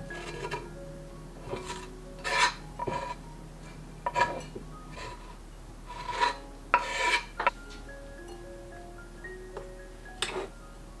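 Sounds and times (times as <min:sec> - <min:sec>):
knife scraping wooden board: 0:01.4 - 0:03.2, 0:04.1 - 0:04.4, 0:05.9 - 0:07.3.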